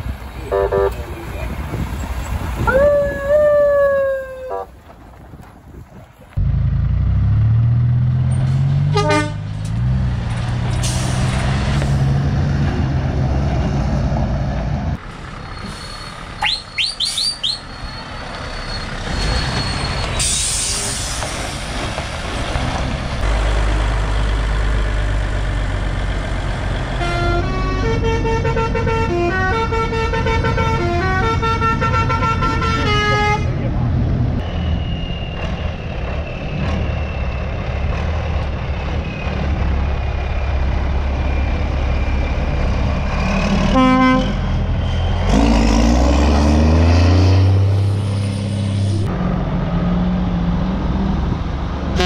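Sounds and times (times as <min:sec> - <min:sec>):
air horn blast: 0:00.5 - 0:01.0, 0:08.9 - 0:09.5, 0:27.0 - 0:33.5, 0:43.7 - 0:44.4
musical multi-note truck horn: 0:00.5 - 0:01.0, 0:08.8 - 0:09.6, 0:27.0 - 0:33.6, 0:43.7 - 0:44.5
lorry diesel engine revving: 0:33.1 - 0:52.0.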